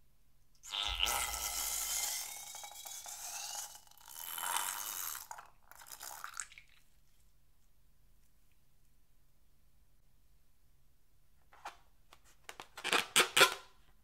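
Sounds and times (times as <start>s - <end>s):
balloon neck squealing: 0.7s - 2.4s
glue and air sputtering from balloon: 0.7s - 5.3s.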